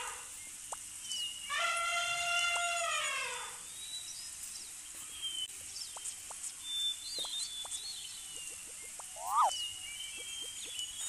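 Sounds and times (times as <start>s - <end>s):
faint bird chirps: 0.0s - 11.0s
steady high hiss: 0.0s - 11.0s
falling animal cry: 9.2s - 9.5s.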